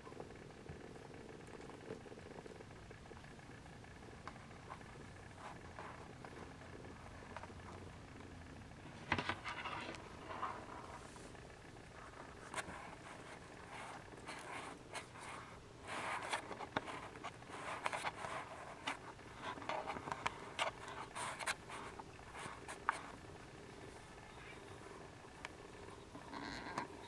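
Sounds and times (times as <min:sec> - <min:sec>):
kittens rustling on blanket: 0:08.8 - 0:23.3.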